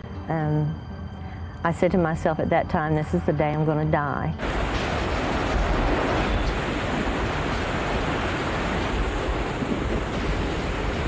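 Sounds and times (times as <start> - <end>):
wind buffeting microphone: 4.4 - 11.0.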